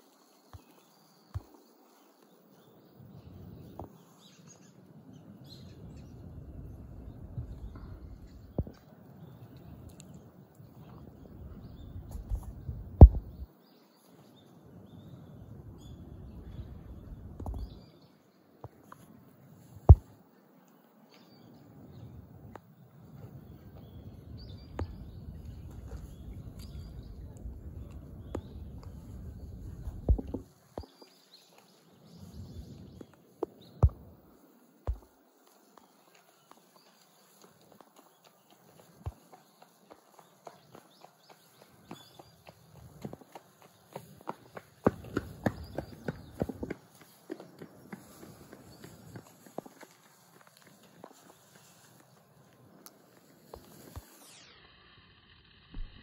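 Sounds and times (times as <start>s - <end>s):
low outdoor rumble: 5.1s - 13.5s, 14.8s - 17.9s, 21.7s - 30.6s.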